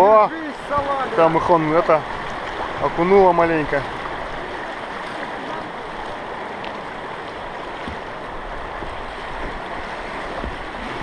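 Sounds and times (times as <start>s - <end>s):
river water rushing over rocks: 0.0s - 11.0s.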